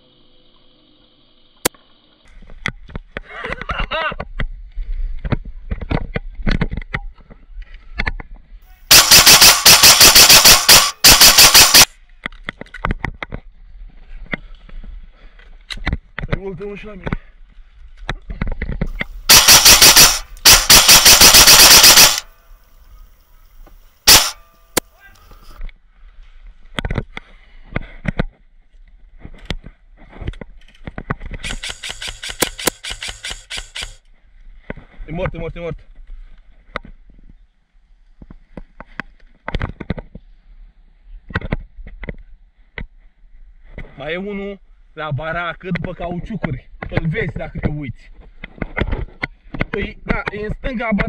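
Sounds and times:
airsoft rifle firing full-auto: 0:08.9 - 0:11.9, 0:19.2 - 0:22.3, 0:24.1 - 0:24.4, 0:31.4 - 0:34.0
sharp clicks: 0:08.9 - 0:11.9, 0:18.9 - 0:22.3, 0:24.1 - 0:24.9, 0:31.3 - 0:34.0
irregular clicks and knocks: 0:29.4 - 0:34.0.

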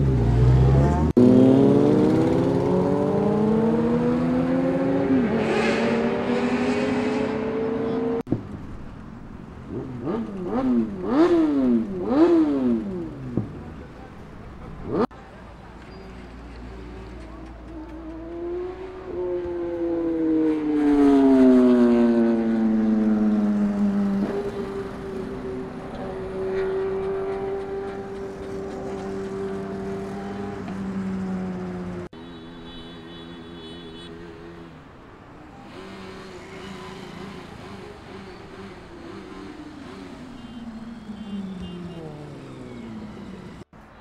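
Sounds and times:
motorcycle engine revving high: 0:00.0 - 0:08.2
motorbike passing at high revs: 0:00.0 - 0:08.3, 0:09.7 - 0:13.5, 0:14.8 - 0:15.1, 0:17.3 - 0:32.7, 0:33.3 - 0:34.9, 0:35.5 - 0:43.7.

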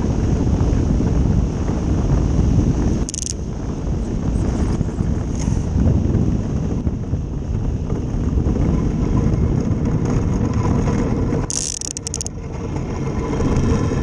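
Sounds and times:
steel runners rattling over ice: 0:03.1 - 0:03.4, 0:09.3 - 0:14.0.

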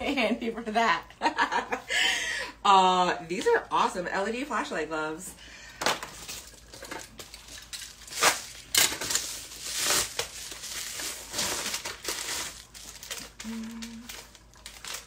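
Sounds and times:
plastic mailer crinkling: 0:06.0 - 0:15.0.

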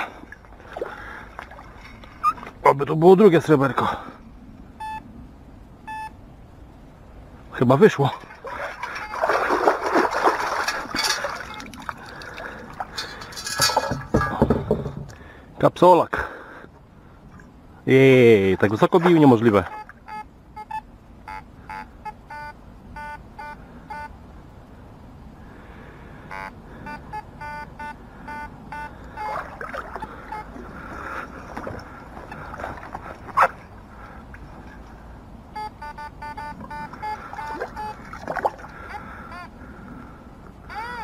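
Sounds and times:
water sloshing: 0:00.0 - 0:02.6, 0:07.9 - 0:15.4, 0:28.9 - 0:35.1, 0:36.4 - 0:38.9
metal detector beeping: 0:05.9 - 0:06.1, 0:19.7 - 0:24.2, 0:26.3 - 0:29.4, 0:30.0 - 0:30.5, 0:35.5 - 0:38.0, 0:40.7 - 0:41.0.

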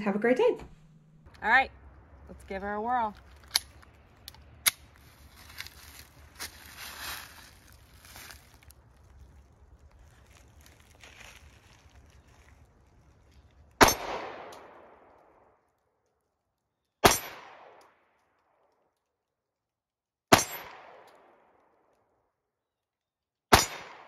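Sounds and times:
pistol shots with echo: 0:13.8 - 0:15.1, 0:17.0 - 0:17.8, 0:23.5 - 0:24.0.

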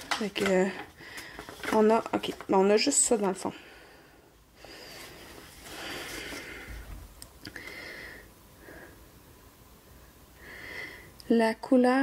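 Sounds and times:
paper rustling and crinkling: 0:00.0 - 0:03.4.

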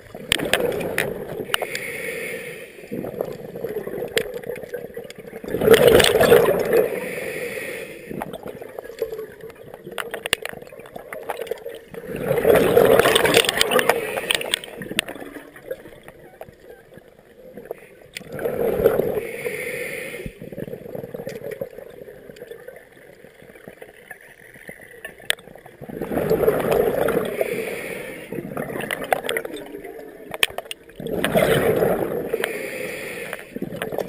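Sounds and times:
rushes of exhaled bubbles: 0:00.0 - 0:16.1, 0:17.4 - 0:23.8, 0:25.6 - 0:34.0
diver breathing through regulator: 0:01.4 - 0:03.2, 0:06.5 - 0:08.3, 0:12.4 - 0:14.9, 0:18.4 - 0:20.5, 0:26.7 - 0:28.5, 0:31.3 - 0:33.8.

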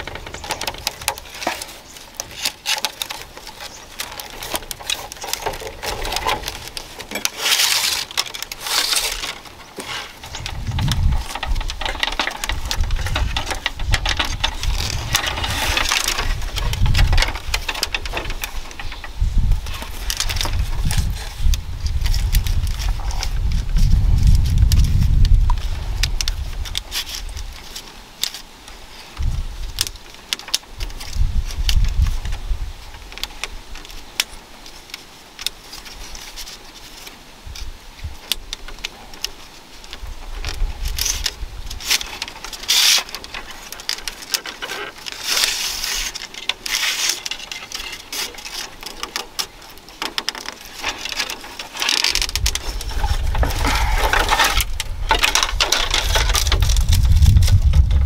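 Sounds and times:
bamboo strips clicking and scraping: 0:00.0 - 0:58.0.

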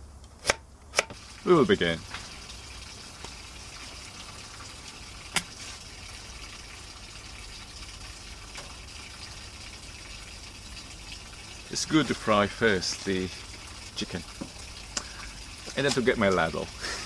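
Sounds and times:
oil pouring into a wok: 0:01.2 - 0:17.0
steady hiss: 0:15.0 - 0:17.0.

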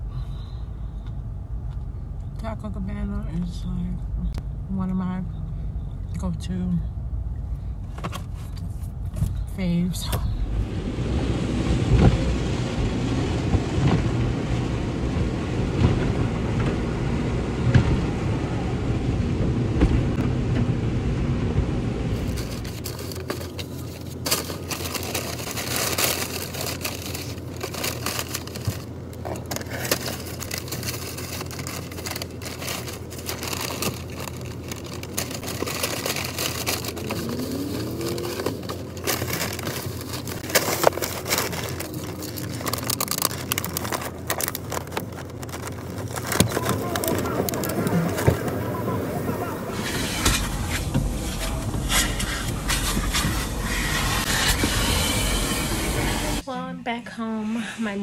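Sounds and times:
car wash water spray and brushes: 0:10.6 - 0:56.4
paper food packaging crinkling: 0:22.1 - 0:54.7.

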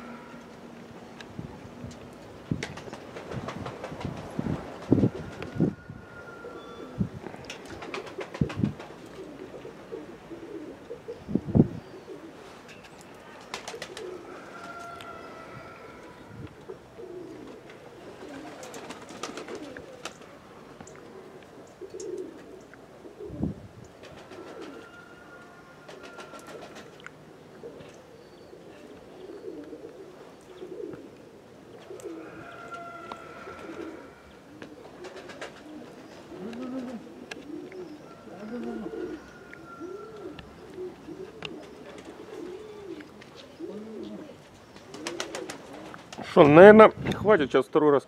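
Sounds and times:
pigeons cooing: 0:00.0 - 0:01.0, 0:02.7 - 0:46.4.

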